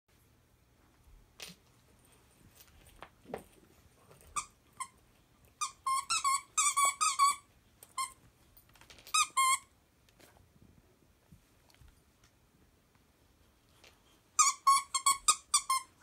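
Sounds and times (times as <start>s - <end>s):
squeaky dog toy squeaking: 5.6s - 8.2s, 9.1s - 9.7s, 14.4s - 16.0s.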